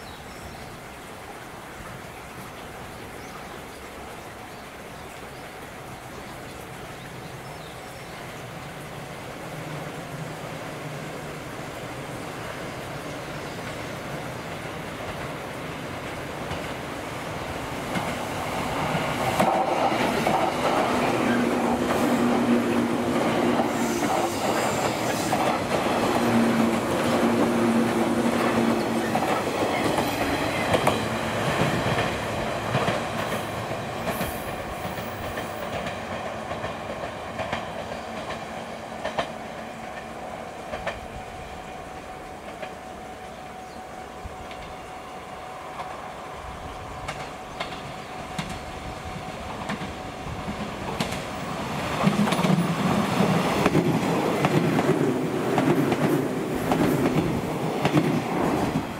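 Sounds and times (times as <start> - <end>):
electric train hum: 8.2 - 58.9
train wheels clacking over rail joints: 17.8 - 41.3, 47.0 - 58.9.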